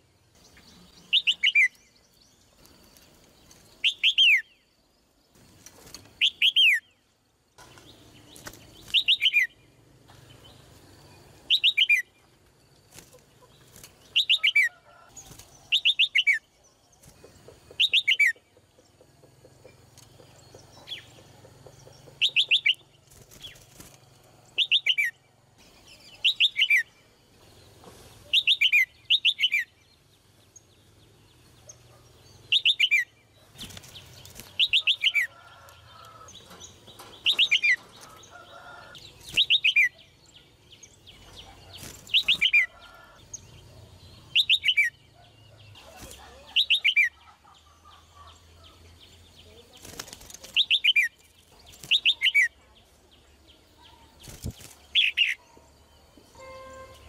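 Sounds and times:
wing flutters: 5.3s - 6.5s, 7.6s - 9.4s, 12.8s - 14.4s, 15.0s - 15.9s, 19.6s - 24.7s, 33.4s - 39.7s, 41.2s - 43.2s, 49.5s - 52.3s, 54.1s - 55.3s.

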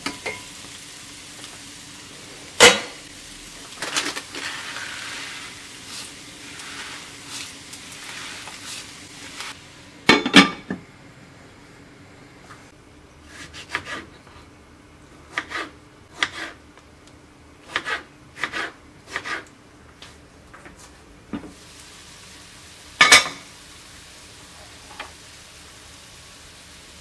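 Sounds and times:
vegetables sizzling in a pan: 0.0s - 14.0s, 20.8s - 27.0s
knife cutting on wooden board: 13.3s - 14.1s, 17.7s - 19.4s
glass pan lid clank: 23.0s - 23.4s.

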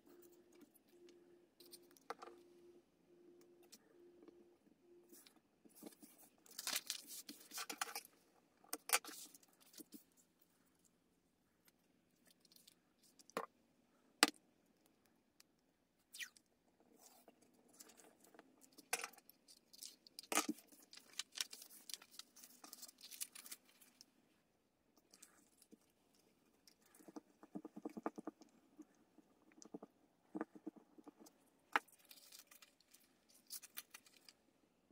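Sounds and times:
paper rustling and crinkling: 5.8s - 8.1s, 19.5s - 24.0s.

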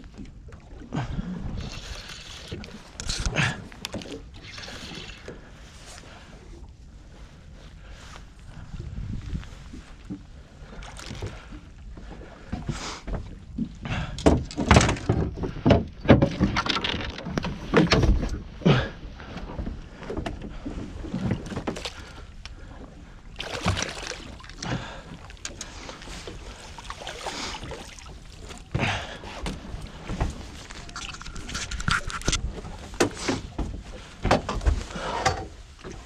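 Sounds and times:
knocks against boat: 32.9s - 35.5s.

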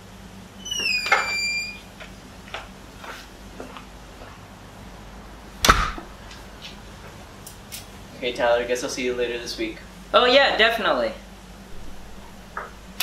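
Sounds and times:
door squeak: 0.6s - 1.9s
sharp loud knock: 5.6s - 6.1s.

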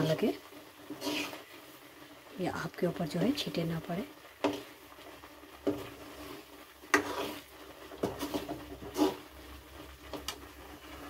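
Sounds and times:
thick mixture bubbling: 0.0s - 11.0s
spatula scraping metal pan: 0.9s - 1.6s, 5.6s - 9.4s.

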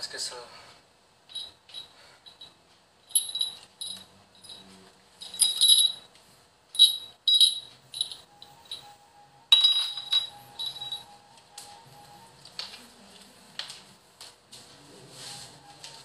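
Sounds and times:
small object jingling: 3.1s - 6.1s, 6.8s - 8.9s, 9.5s - 11.0s
faint steady tone: 6.7s - 12.4s.

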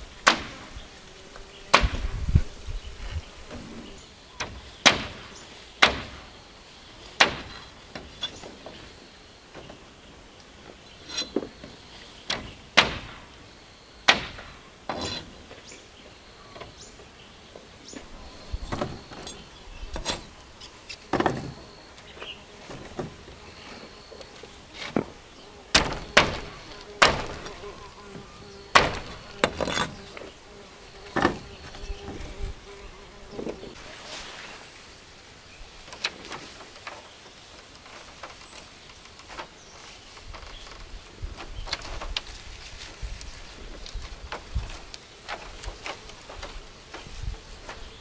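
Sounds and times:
sharp knocks: 0.2s - 0.6s, 4.4s - 6.3s, 7.2s - 8.5s, 12.3s - 13.3s, 14.1s - 15.3s, 25.7s - 27.6s, 28.7s - 30.0s.

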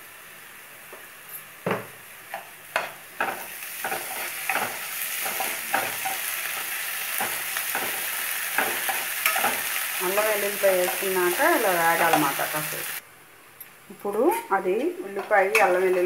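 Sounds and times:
onions sizzling in oil: 0.0s - 13.0s, 14.1s - 16.0s
spoon scraping a pan: 2.3s - 12.6s, 14.3s - 16.0s.

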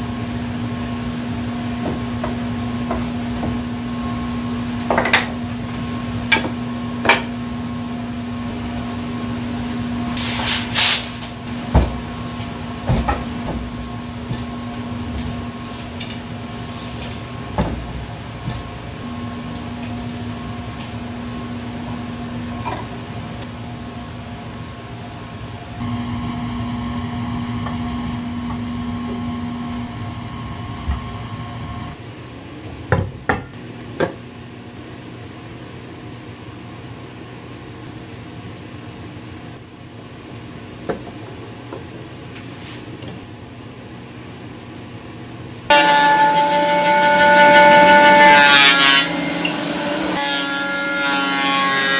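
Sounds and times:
steady machine hum: 0.0s - 32.6s.

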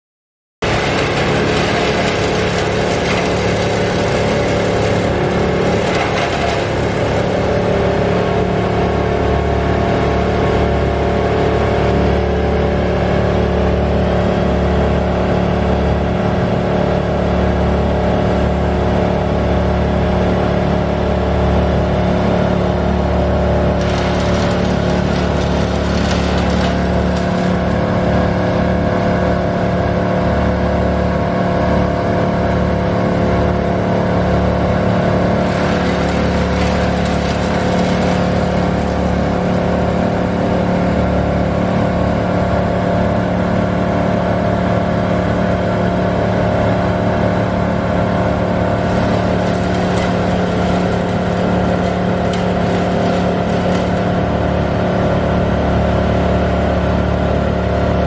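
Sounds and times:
heavy engine running: 0.6s - 58.0s.

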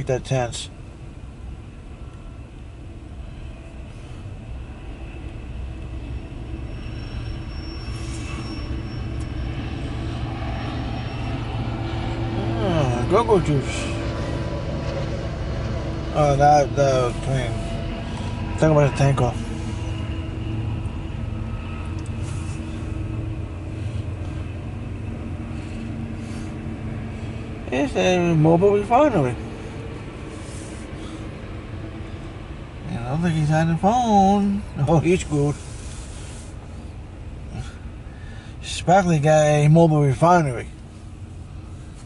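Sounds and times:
faint high whine: 0.0s - 42.0s
freight train rolling past: 2.0s - 33.4s.

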